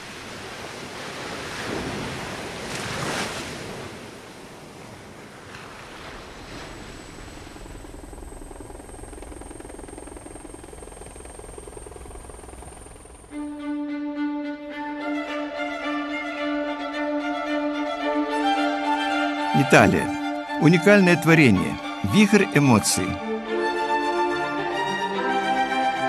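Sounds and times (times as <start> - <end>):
sea surf washing in: 0.0 - 7.6
bowed string music: 13.3 - 26.0.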